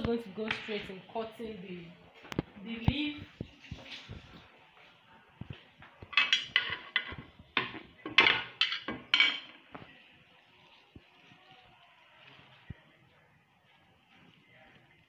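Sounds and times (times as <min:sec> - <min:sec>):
kitchenware clattering: 0:06.0 - 0:09.7.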